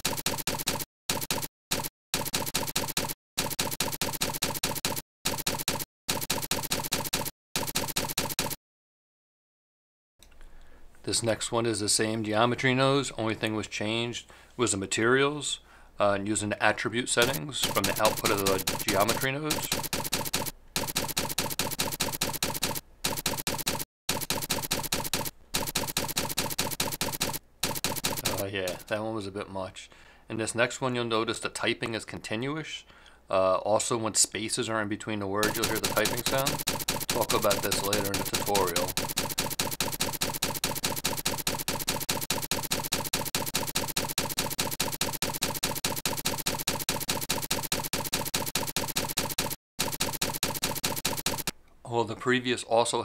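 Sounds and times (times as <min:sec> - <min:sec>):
keystroke clicks: 0:00.0 - 0:08.6, 0:17.2 - 0:28.8, 0:35.4 - 0:51.5.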